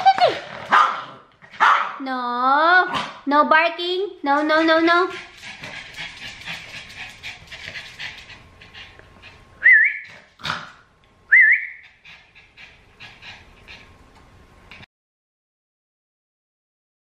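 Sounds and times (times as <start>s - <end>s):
dog breathing: 5.0s - 9.6s, 11.8s - 14.0s.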